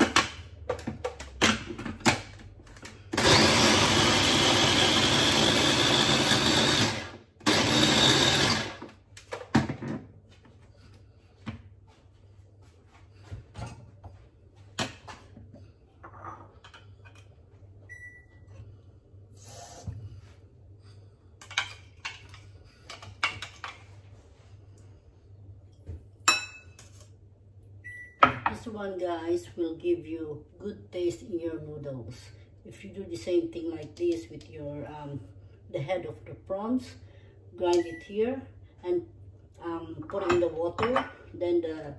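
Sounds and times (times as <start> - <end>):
food chopper motor grinding: 3.1 - 8.9.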